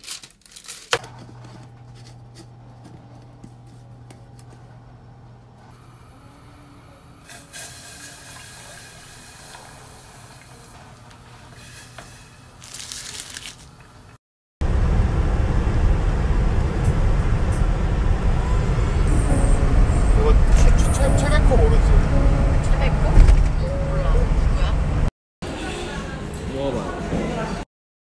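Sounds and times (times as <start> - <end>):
saucepan on stove: 6.0 - 12.6
car road and engine noise: 14.6 - 25.1.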